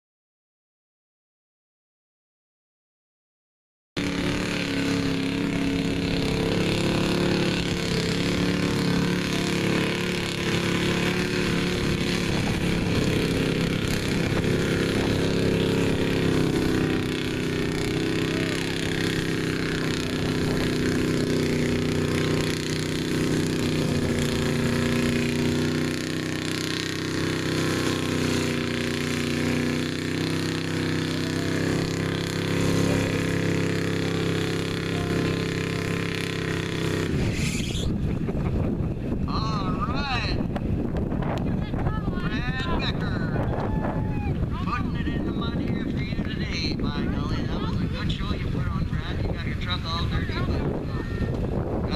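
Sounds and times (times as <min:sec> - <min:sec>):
truck engine running under load: 0:04.0 - 0:39.2.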